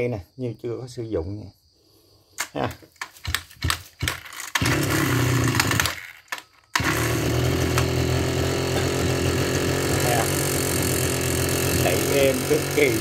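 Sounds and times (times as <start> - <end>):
pull rope starter: 2.4 - 13.0
two-stroke brush cutter engine: 3.2 - 13.0.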